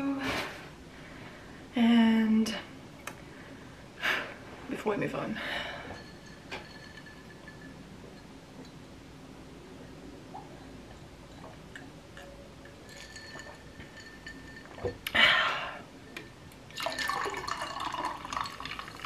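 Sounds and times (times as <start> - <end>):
cider splashing into a glass: 16.7 - 19.0.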